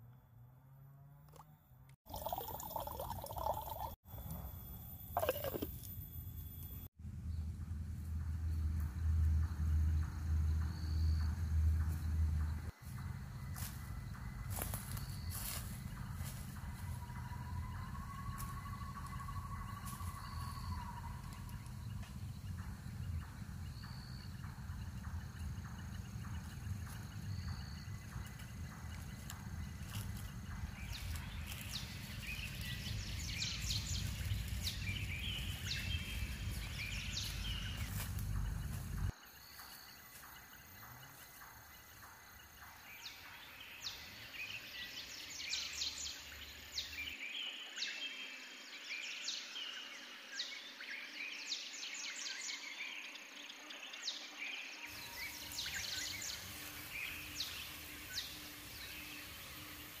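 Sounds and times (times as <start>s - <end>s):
birds chirping: 2.1s - 4.0s, 8.5s - 39.1s, 54.9s - 60.0s
low rumbling noise: 7.0s - 15.0s, 15.6s - 39.1s.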